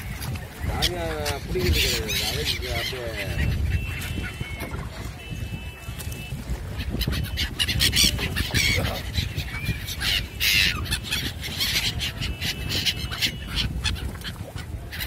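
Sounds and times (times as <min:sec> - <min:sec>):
gulls calling: 0:00.0 - 0:15.0.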